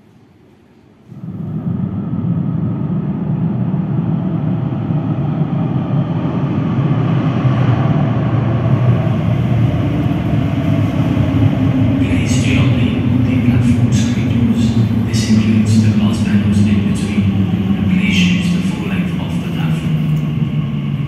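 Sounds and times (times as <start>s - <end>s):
electric train rumbling in tunnel: 0.0s - 21.0s.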